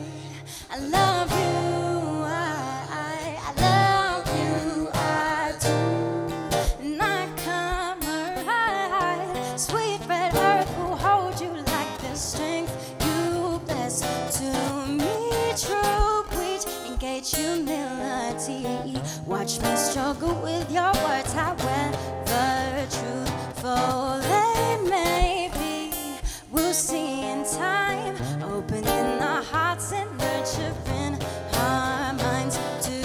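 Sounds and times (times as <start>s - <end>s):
acoustic guitar chords: 0.0s - 33.0s
woman singing: 0.0s - 33.0s.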